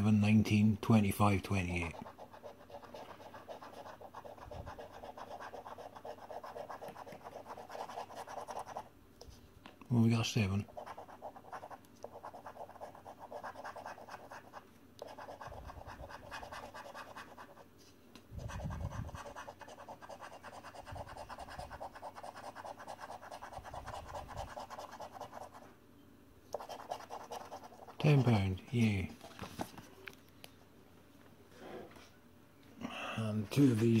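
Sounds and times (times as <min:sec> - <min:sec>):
coin scratching scratchcard: 0:01.9 - 0:08.9, 0:10.7 - 0:17.6, 0:18.4 - 0:25.6, 0:26.6 - 0:28.1.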